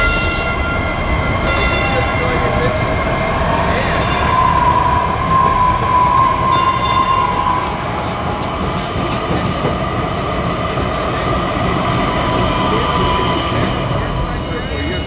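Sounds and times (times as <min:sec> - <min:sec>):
high steady tone: 0:00.0 - 0:08.7
train rumbling past: 0:00.0 - 0:15.0.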